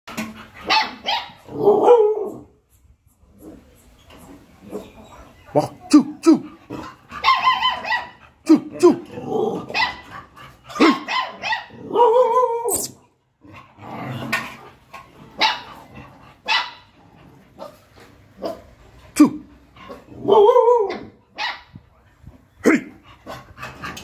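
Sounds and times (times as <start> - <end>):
puppies barking: 0.6 - 2.5, 4.6 - 8.4, 9.5 - 12.7, 15.3 - 17.0, 19.8 - 21.7.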